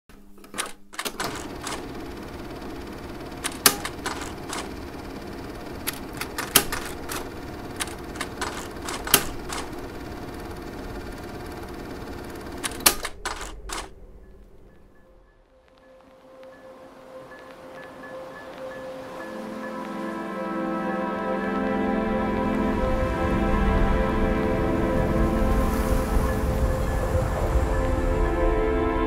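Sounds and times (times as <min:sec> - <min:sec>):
mechanical whir: 0:00.4 - 0:15.8
sharp machine clicks and clacks: 0:00.6 - 0:14.9.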